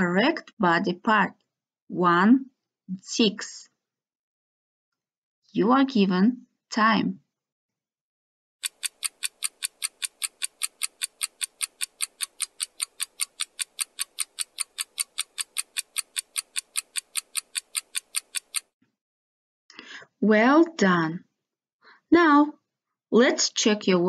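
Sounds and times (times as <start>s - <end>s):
fast clock ticking: 8.6s - 18.7s.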